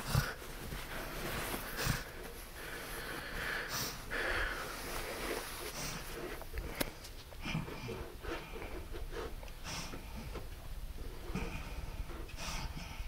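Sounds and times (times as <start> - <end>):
woman breathing heavily: 0.0 - 13.0.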